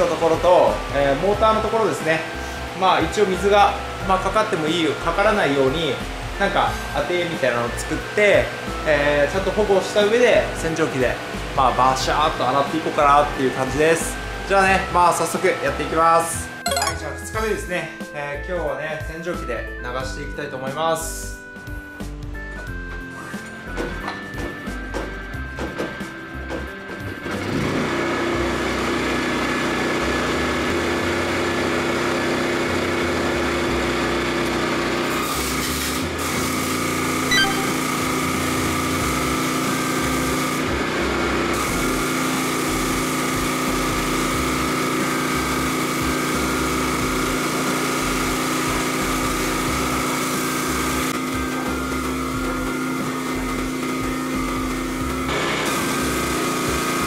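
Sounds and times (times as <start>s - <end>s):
pressure washer running: 33.9s - 51.3s, 52.9s - 57.0s.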